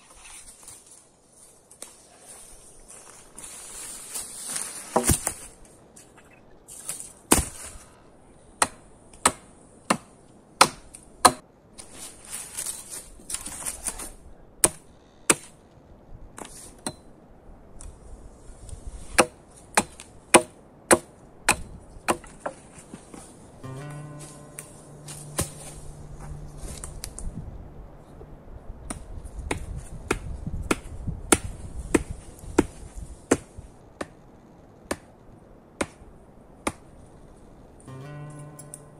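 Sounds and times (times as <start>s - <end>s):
dry leaves rustling: 0.0s - 8.0s, 11.8s - 14.3s, 22.2s - 27.9s
axe chopping wood: 7.3s - 7.7s, 8.6s - 11.4s, 19.2s - 22.6s, 23.8s - 25.8s, 28.9s - 34.2s, 35.8s - 36.0s, 36.6s - 36.8s.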